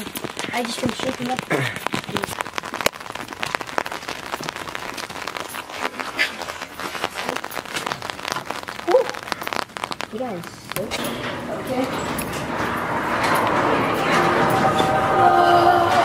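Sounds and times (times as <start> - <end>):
soda fizzing and spraying: 0.0 - 12.4.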